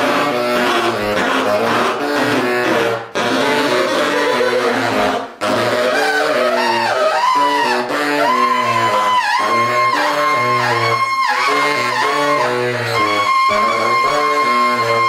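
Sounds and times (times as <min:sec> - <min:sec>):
baritone saxophone low pattern: 0:00.0 - 0:15.0
saxophone sliding high note: 0:00.0 - 0:15.0.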